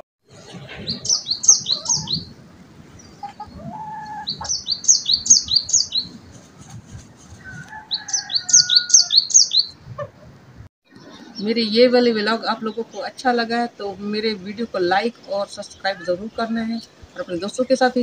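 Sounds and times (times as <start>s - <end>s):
soft low bird calls: 0.3s - 6.6s, 7.4s - 13.2s
songbird chirping: 0.4s - 6.7s, 7.4s - 10.0s, 10.9s - 18.0s.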